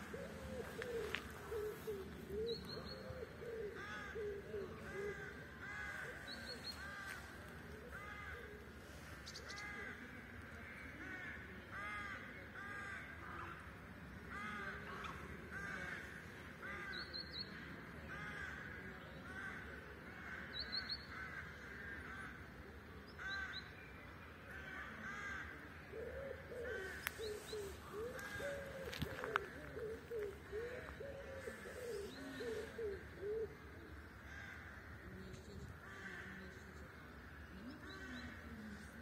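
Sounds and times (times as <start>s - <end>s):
pigeon cooing: 0.0s - 4.8s, 26.0s - 33.7s
crows cawing: 3.7s - 7.3s, 24.5s - 25.6s, 26.5s - 33.5s, 34.2s - 35.0s.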